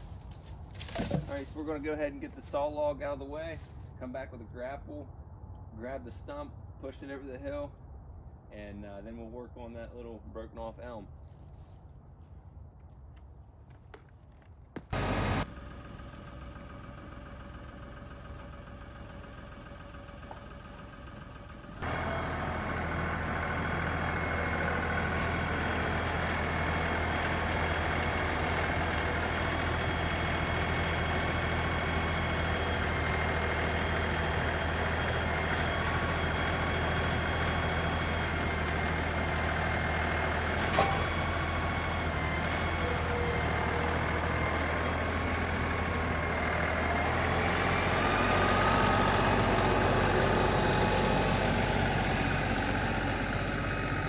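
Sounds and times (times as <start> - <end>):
tractor diesel engine running: 0.0 - 4.0, 14.8 - 54.0.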